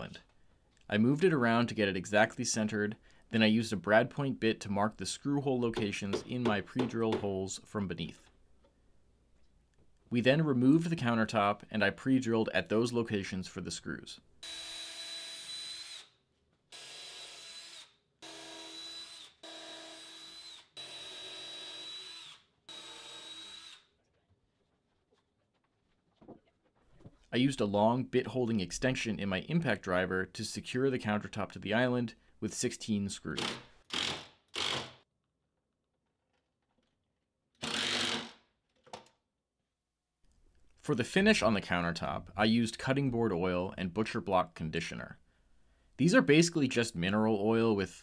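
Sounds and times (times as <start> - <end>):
power drill whining: 14.4 - 16.1, 16.7 - 23.9, 33.4 - 34.9, 37.6 - 38.4
impact driver driving screws: 33.4 - 35.0, 37.6 - 39.0.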